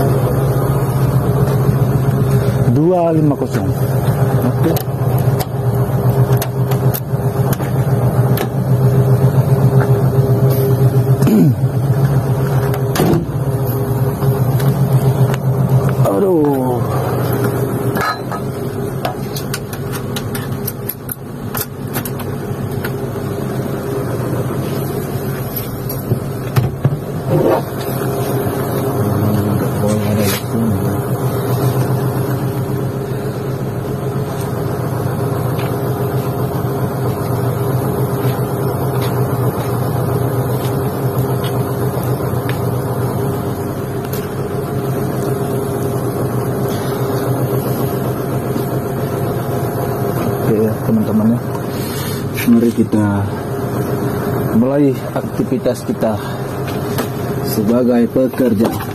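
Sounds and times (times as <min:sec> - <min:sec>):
diesel engine idling: 0:00.0 - 0:58.9
knocks and clicks in cab: 0:12.0 - 0:13.4, 0:25.9 - 0:27.8.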